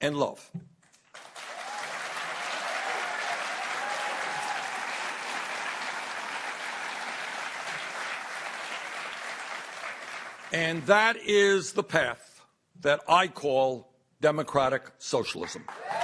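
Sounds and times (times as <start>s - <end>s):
audience applauding: 1.1s - 11.2s, 15.4s - 16.0s
faint cheers: 1.4s - 5.3s, 15.7s - 16.0s.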